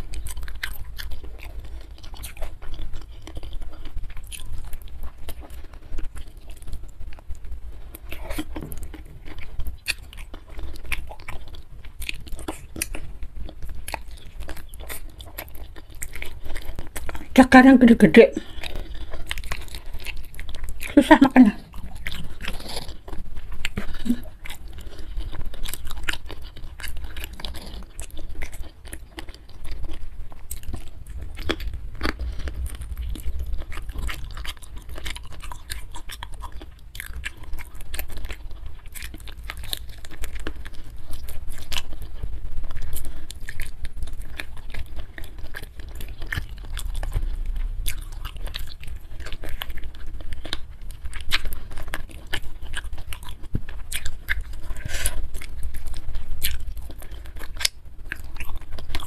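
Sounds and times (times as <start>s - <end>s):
person chewing wetly: 0.0s - 59.0s
low rumble: 30.5s - 36.4s.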